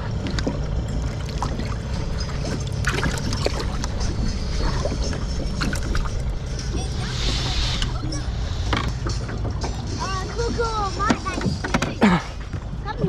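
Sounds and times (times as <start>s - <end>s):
water splashing in a tank: 0.0s - 3.9s
steady low hum: 0.0s - 13.0s.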